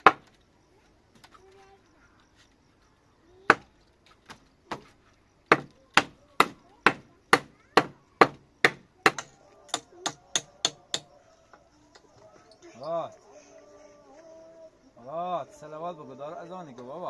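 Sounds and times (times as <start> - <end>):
tool striking wood: 5.5 - 11.1.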